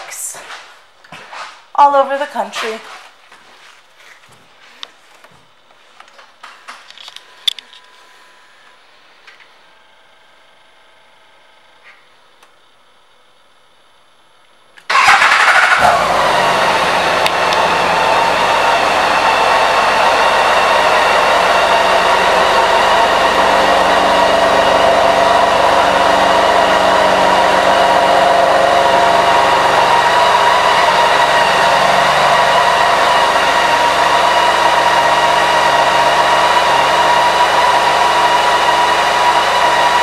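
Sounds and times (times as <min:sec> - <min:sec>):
motorcycle engine starting and idling: 0:14.8 - 0:40.0.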